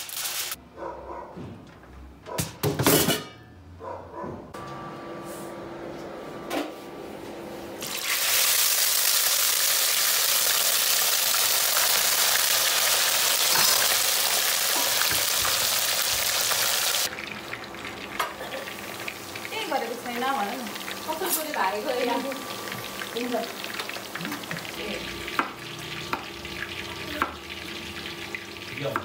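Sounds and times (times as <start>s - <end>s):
chicken deep-frying in oil: 7.8s - 29.0s.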